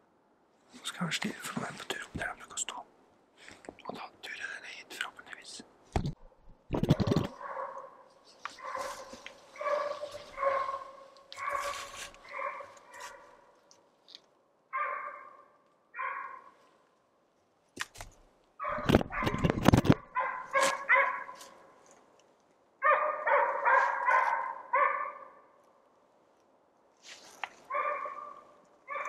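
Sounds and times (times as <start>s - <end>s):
dog baying: 8.6s - 13.4s.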